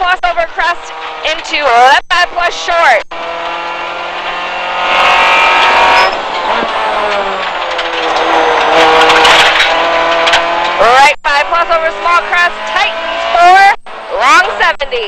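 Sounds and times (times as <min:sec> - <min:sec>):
car engine pulling hard: 0:00.0 - 0:15.0.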